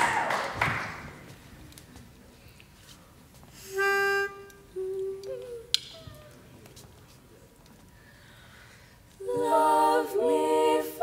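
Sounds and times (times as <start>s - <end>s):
people humming: 3.7s - 6.6s.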